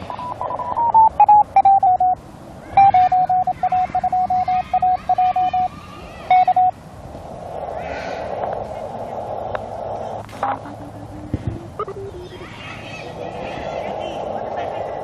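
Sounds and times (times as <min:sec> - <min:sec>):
morse code beeping tone: 0:00.0 - 0:02.2, 0:02.8 - 0:05.7, 0:06.3 - 0:06.8
radio band hiss: 0:00.0 - 0:15.0.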